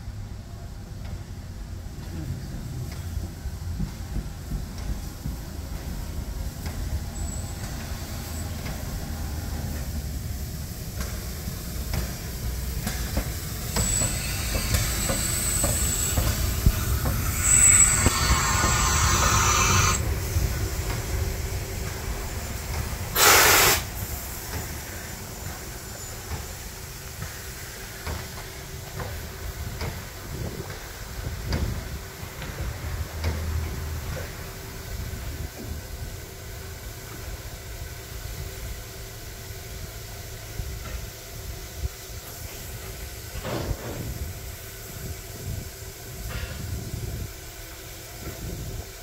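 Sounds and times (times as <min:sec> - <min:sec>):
steam locomotive rumbling past: 0:00.0 - 0:49.0
running gear clacking on rail joints: 0:00.4 - 0:19.4, 0:23.9 - 0:36.1
steam hissing: 0:03.4 - 0:49.0.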